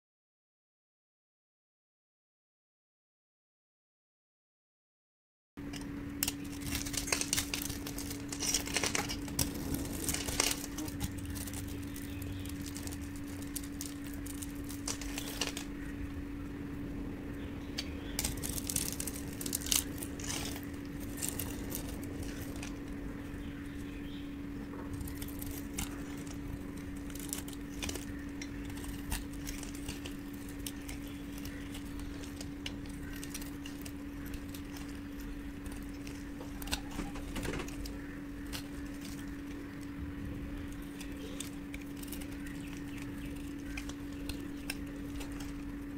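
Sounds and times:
low hum: 0:05.6 - 0:45.9
knife cutting soap: 0:40.7 - 0:45.9.

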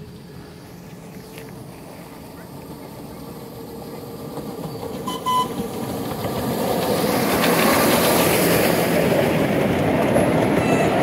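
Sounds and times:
short high beep: 0:05.1 - 0:05.5.

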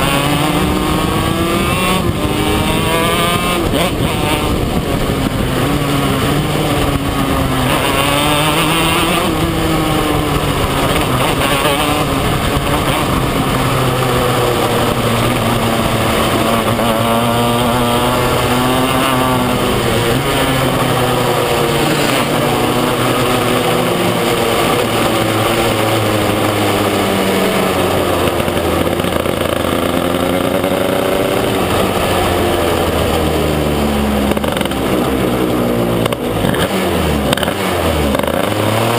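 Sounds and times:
kart engine revving: 0:00.0 - 0:38.9.

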